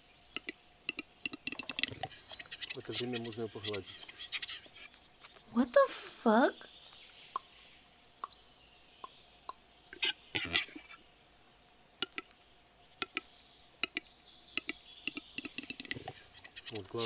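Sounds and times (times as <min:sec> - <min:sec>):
bird knocking clicks: 0:00.4 - 0:01.9, 0:12.0 - 0:12.3, 0:13.0 - 0:13.2, 0:14.6 - 0:16.2.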